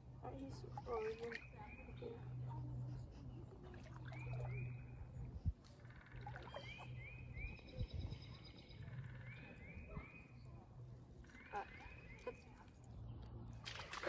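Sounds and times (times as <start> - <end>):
low steady hum: 0.0 - 14.0
pond animal calls: 5.8 - 7.7, 11.2 - 12.8.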